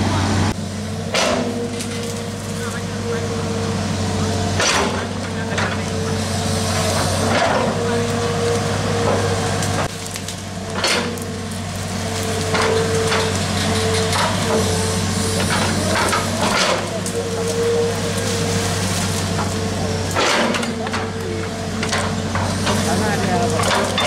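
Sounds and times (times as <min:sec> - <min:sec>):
diesel engine running: 0:00.0 - 0:24.0
hydraulic whine: 0:00.0 - 0:24.0
excavator bucket crunching soil: 0:00.9 - 0:24.0.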